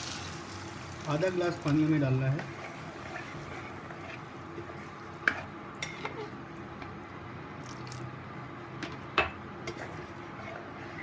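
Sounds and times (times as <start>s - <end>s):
spatula stirring thick curry: 1.2s - 6.9s, 9.6s - 11.0s.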